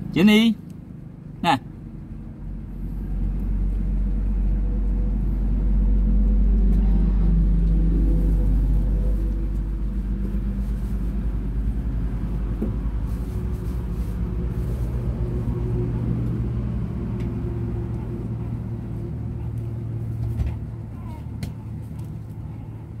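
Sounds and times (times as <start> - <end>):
motor engine rumbling: 0.0 - 23.0.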